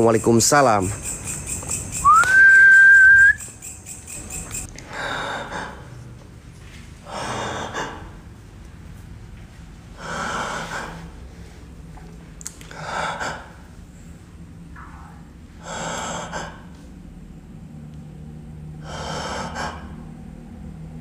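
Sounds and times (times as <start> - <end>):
rising whistle: 1.3 - 4.7.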